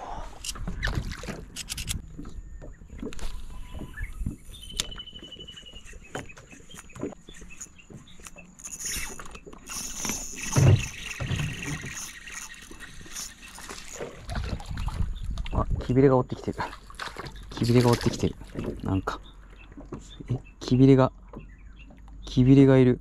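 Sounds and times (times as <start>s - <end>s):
fishing reel gears clicking and whirring: 8.6s - 14.1s.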